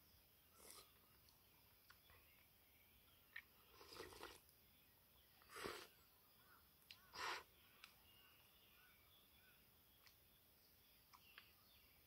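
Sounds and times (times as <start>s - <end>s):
faint bird chirps: 0.0s - 12.0s
noodle slurp: 0.6s - 0.9s, 3.7s - 4.4s, 5.5s - 5.9s, 7.1s - 7.5s.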